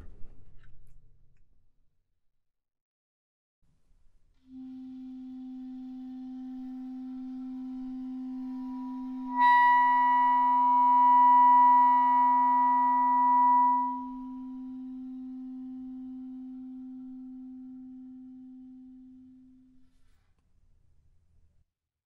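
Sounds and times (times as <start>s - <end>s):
clarinet playing multiphonic: 6.8s - 15.2s.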